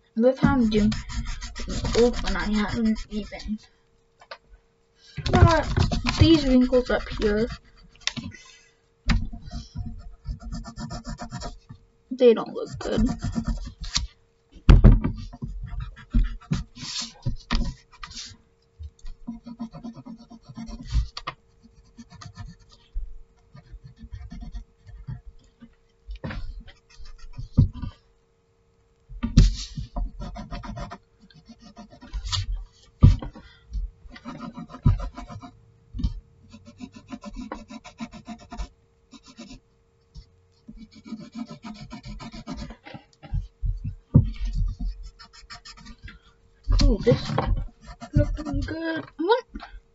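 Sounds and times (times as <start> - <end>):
pencil scratching on paper: 0.4 - 3.7, 5.3 - 8.4, 9.2 - 11.7, 12.5 - 14.1, 15.2 - 18.4, 19.2 - 22.9, 23.5 - 25.2, 26.3 - 28.0, 29.4 - 32.6, 34.1 - 35.6, 36.5 - 39.6, 40.7 - 43.5, 44.2 - 46.1, 46.7 - 49.0
hand rubbing paper sheet: 0.5 - 3.6, 5.3 - 8.4, 12.6 - 14.2, 15.1 - 18.4, 29.4 - 33.3, 40.2 - 46.1, 46.7 - 49.0.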